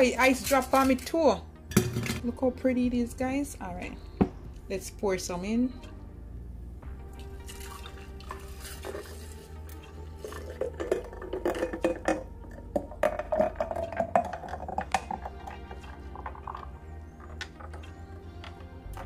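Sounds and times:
juice pouring into pitcher: 7.0s - 18.4s
ice clinking against glass: 10.2s - 16.7s.

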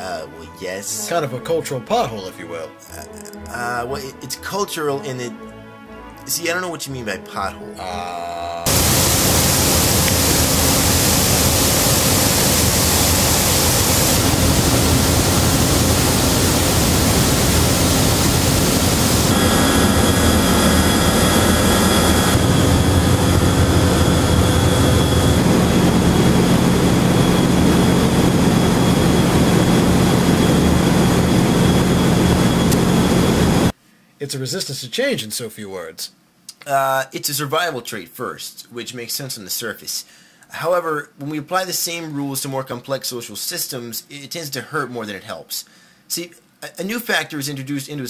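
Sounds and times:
cooling tower roar: 8.7s - 33.7s
steady low hum: 8.7s - 33.7s
thin motor whine: 8.7s - 33.7s.

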